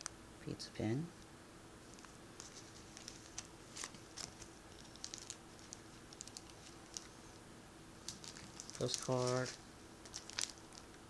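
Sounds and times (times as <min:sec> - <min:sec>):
plastic sleeves crinkling: 0:01.9 - 0:07.4, 0:08.0 - 0:11.0.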